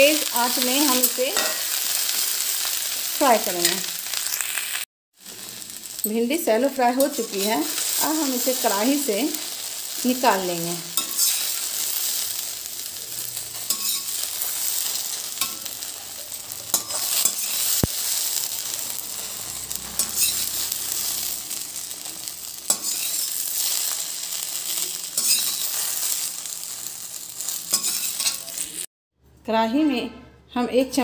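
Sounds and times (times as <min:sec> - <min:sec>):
food sizzling in hot oil: 0:00.0 - 0:28.9
metal skimmer scraping a pan: 0:11.0 - 0:11.6, 0:13.6 - 0:14.8.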